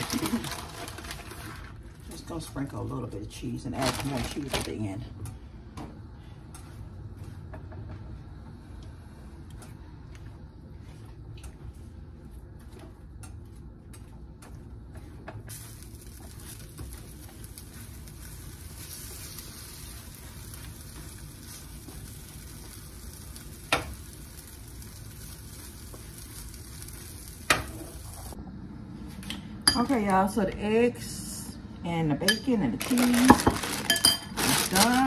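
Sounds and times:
eggs sizzling in a pan: 15.5 - 28.4.

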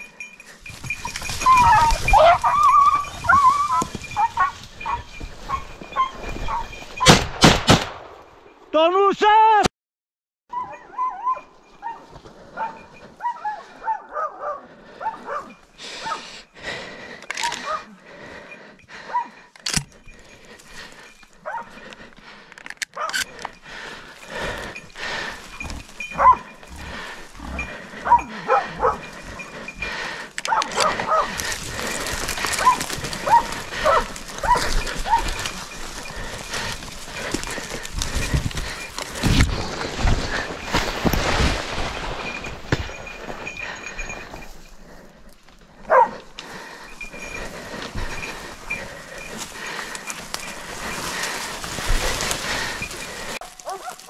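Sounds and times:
dogs barking and yelping: 0.0 - 7.1, 10.5 - 16.5, 17.4 - 39.2, 45.7 - 54.0
branches rustling: 0.0 - 7.2, 10.5 - 54.0
twigs cracking: 29.0 - 43.7, 45.4 - 54.0.

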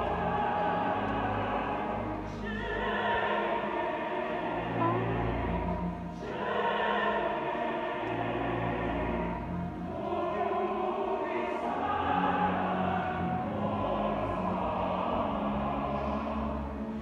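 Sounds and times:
orchestra playing: 0.0 - 10.3
opera chorus and singers: 0.0 - 17.0.

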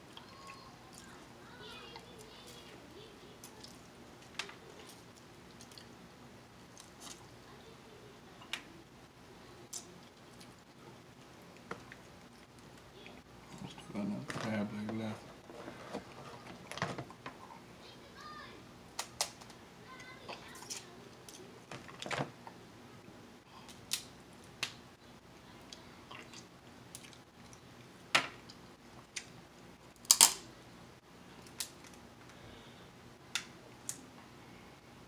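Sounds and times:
crab shells cracking: 19.0 - 19.6, 30.0 - 30.5.

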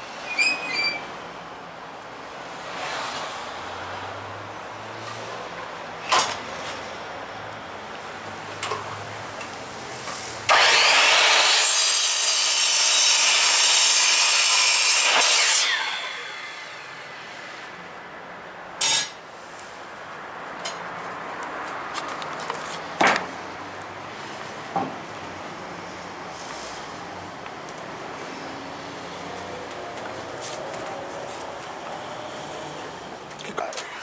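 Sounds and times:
electric saw cutting wood: 10.1 - 17.8.

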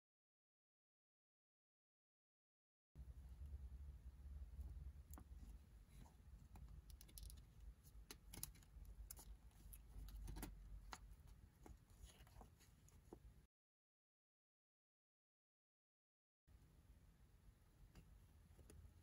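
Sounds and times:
low hum: 3.0 - 8.0.

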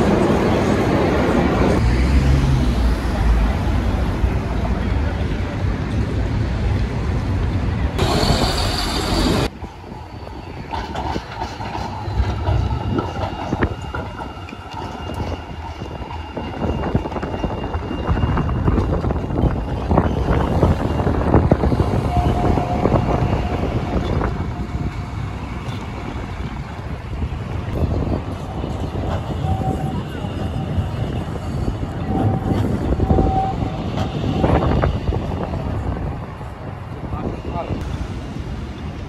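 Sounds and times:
wind on microphone: 5.6 - 39.0
tram wheels clicking over joints: 8.0 - 17.4.

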